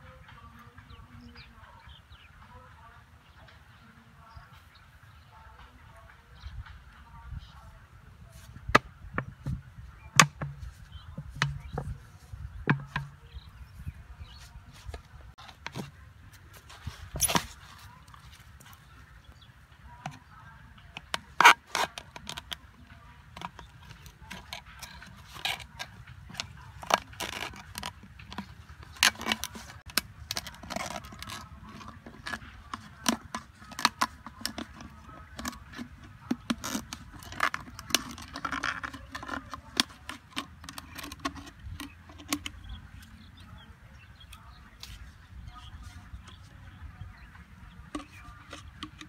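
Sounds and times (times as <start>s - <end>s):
scissors cutting plastic bottle: 20.9s - 22.6s, 23.3s - 42.6s, 47.9s - 49.0s.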